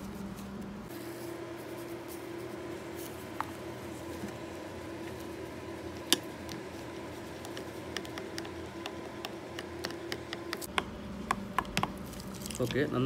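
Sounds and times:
steady background hum: 0:00.0 - 0:13.0
spatula stirring thick puree: 0:02.4 - 0:10.7.

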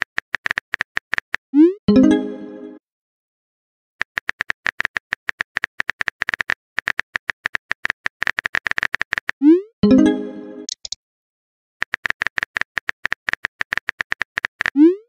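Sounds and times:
keyboard typing clicks: 0:10.6 - 0:11.0.

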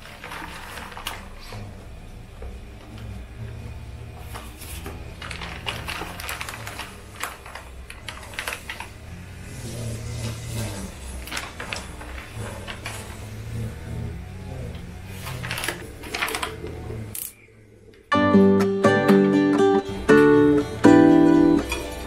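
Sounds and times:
kitchen utensils clicking and knocking: 0:21.4 - 0:22.0.

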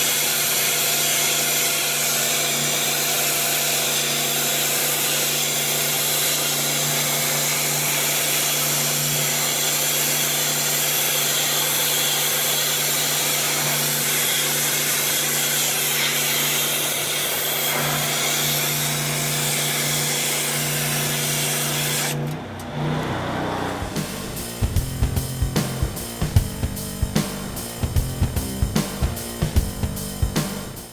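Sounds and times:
pressure washer humming: 0:02.4 - 0:30.4
music: 0:22.9 - 0:30.9.

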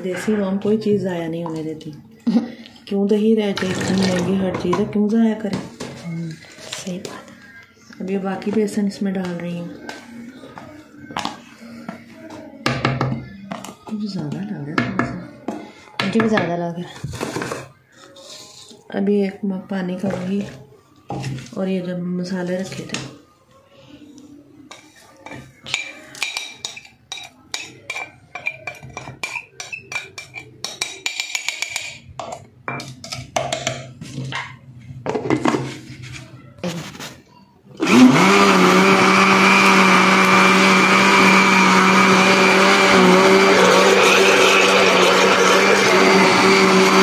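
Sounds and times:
electric blender running: 0:37.8 - 0:47.0.

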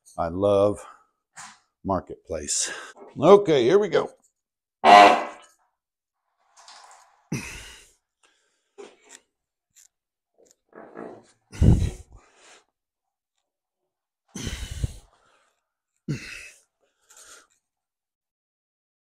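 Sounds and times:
person breathing and grunting: 0:07.3 - 0:08.0, 0:11.5 - 0:12.3, 0:14.3 - 0:15.1, 0:16.1 - 0:16.6.

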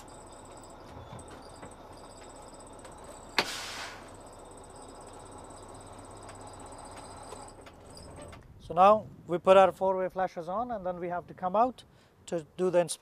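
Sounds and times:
air brake hiss: 0:03.4 - 0:04.2.

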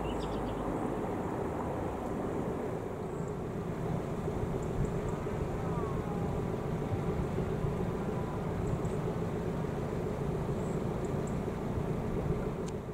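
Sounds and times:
low engine drone: 0:00.0 - 0:12.9
wind rumbling on microphone: 0:00.0 - 0:12.9.

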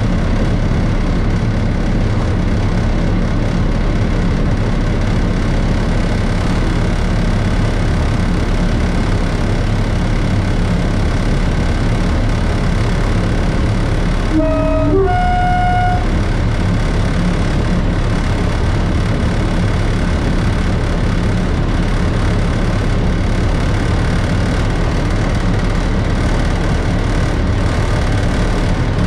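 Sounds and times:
diesel locomotive engine running: 0:00.0 - 0:29.0
two-tone locomotive horn: 0:14.3 - 0:16.6.

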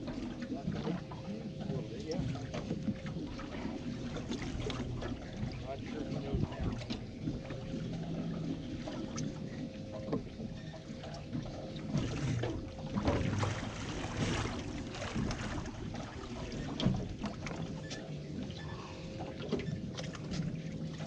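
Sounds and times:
faint steady hum: 0:00.0 - 0:21.0
water slapping against boat hull: 0:00.0 - 0:21.0.

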